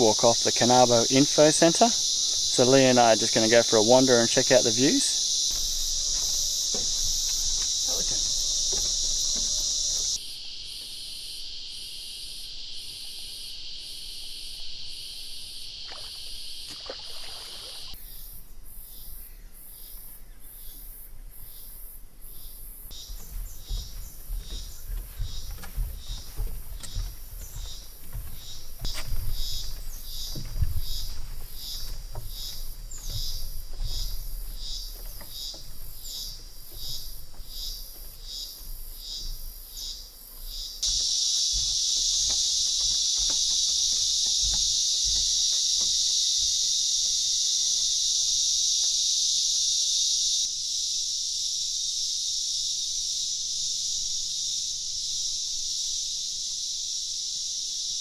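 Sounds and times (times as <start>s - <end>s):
high insect drone: 0.0s - 58.0s
insect chirping: 0.0s - 58.0s
low thuds: 22.9s - 39.6s, 40.5s - 47.3s.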